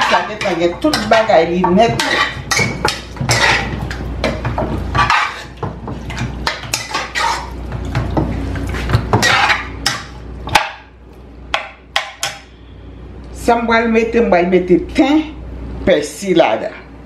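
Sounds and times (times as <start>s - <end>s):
metal spoon scraping metal pot: 0.0s - 3.8s, 4.9s - 5.6s, 6.4s - 7.6s, 9.2s - 10.0s.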